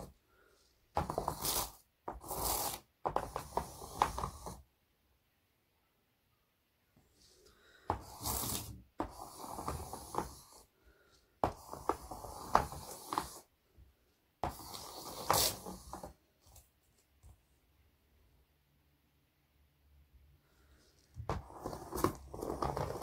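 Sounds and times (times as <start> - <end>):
pencil scraping on paper: 0.0 - 4.6, 7.2 - 13.5, 14.4 - 16.2, 20.6 - 23.0
pencil tapping paper: 0.9 - 4.6, 7.8 - 10.6, 11.3 - 13.4.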